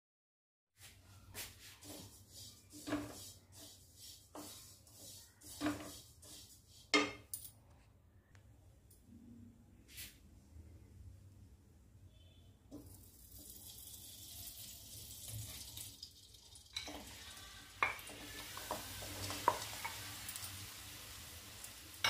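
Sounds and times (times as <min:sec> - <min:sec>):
sizzling in a pan: 0:01.4 - 0:07.2, 0:12.7 - 0:22.0.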